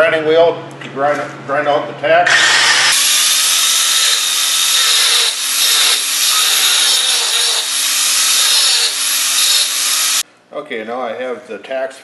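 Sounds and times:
angle grinder grinding steel: 2.3s - 10.2s.

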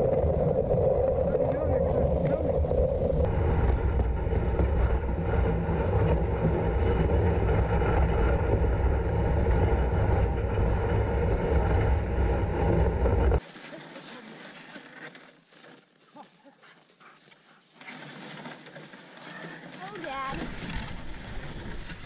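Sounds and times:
wind buffeting microphone: 0.0s - 13.4s
dog sled rumbling on snow: 0.0s - 15.8s, 17.2s - 22.0s.

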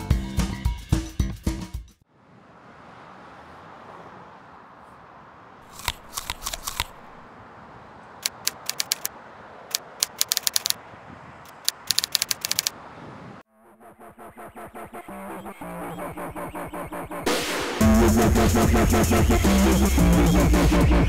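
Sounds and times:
typewriter keys clicking: 5.7s - 7.1s, 8.2s - 9.1s, 9.7s - 10.8s, 11.5s - 12.7s.

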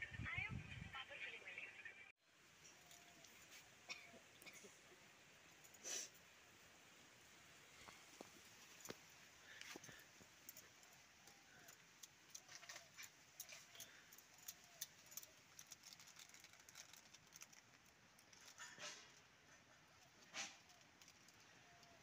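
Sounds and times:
faint clicks and ticks: 7.8s - 22.0s.

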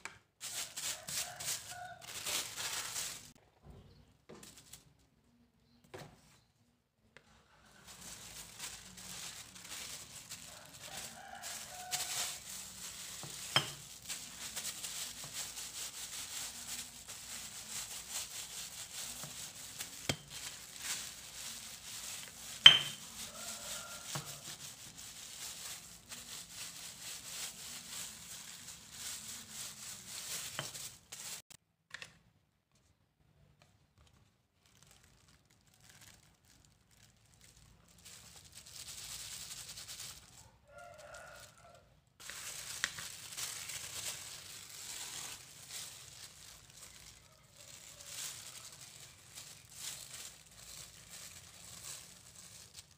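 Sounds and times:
plastic sheeting crinkling: 0.3s - 3.4s, 7.4s - 31.6s, 34.1s - 52.9s
glass bottle knocks: 22.7s - 23.0s.

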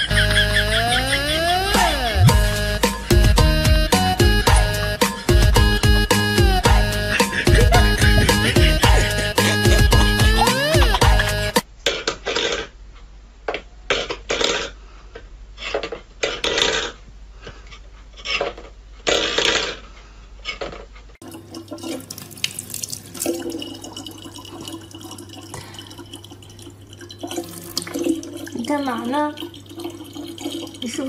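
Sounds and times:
water running into plastic bottle: 21.2s - 31.0s.

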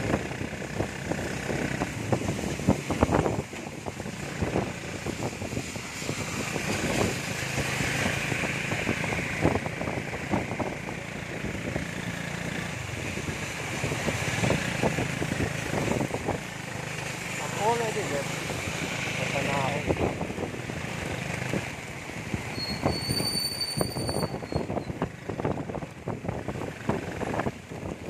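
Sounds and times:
tyres on wet road: 0.0s - 28.0s
heavy rain hiss: 16.5s - 20.0s.

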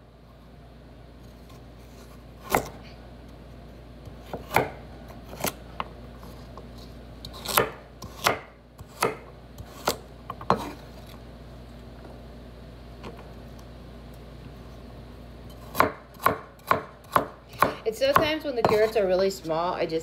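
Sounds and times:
knife chopping on wooden board: 2.4s - 2.8s, 4.1s - 5.6s, 7.3s - 10.8s, 15.6s - 18.9s.

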